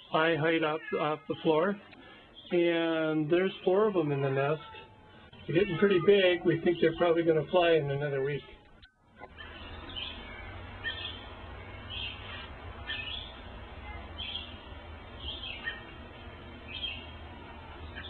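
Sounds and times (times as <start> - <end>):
low steady rumble: 5.0 - 18.0
robins chirping: 5.4 - 7.7, 8.3 - 18.0.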